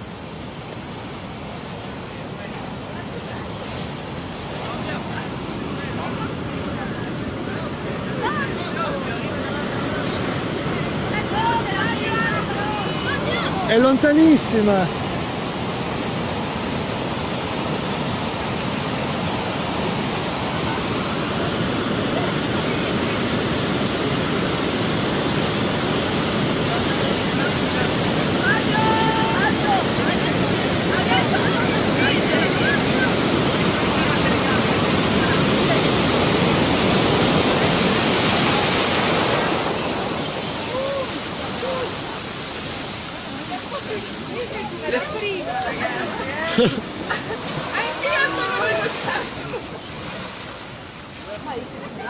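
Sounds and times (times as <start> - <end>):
floodwater rushing: 0.0 - 52.0
seawater surging and breaking: 0.0 - 52.0.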